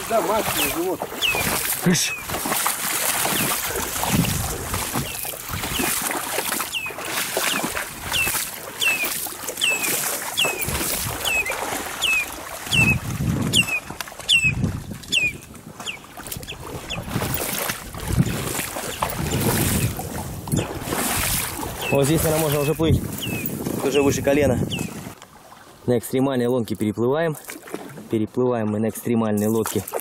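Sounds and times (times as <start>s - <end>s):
water sloshing and splashing: 0.0s - 30.0s
bird chirping: 0.6s - 2.3s, 3.3s - 3.6s, 6.7s - 17.0s, 21.8s - 25.0s.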